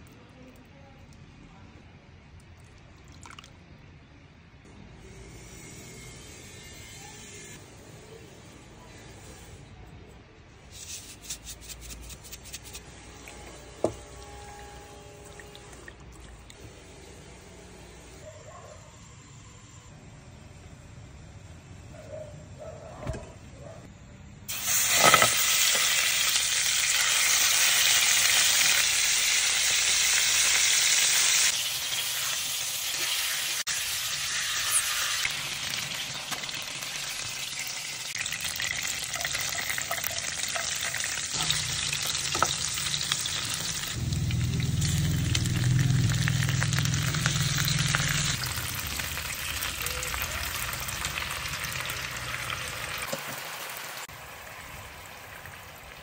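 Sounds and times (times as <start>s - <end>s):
chicken sizzling in frying pan: 24.5s - 56.0s
low hum: 41.4s - 49.4s.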